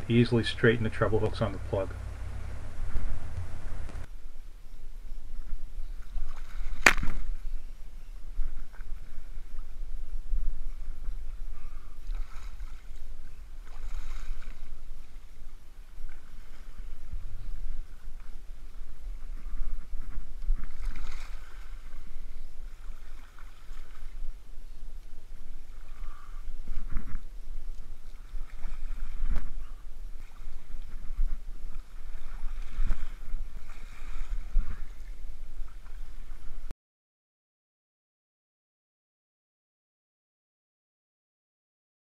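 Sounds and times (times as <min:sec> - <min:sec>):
waves splashing over rocks: 0:00.0 - 0:04.1
wind buffeting microphone: 0:00.0 - 0:04.1
low wind rumble on microphone: 0:00.0 - 0:36.7.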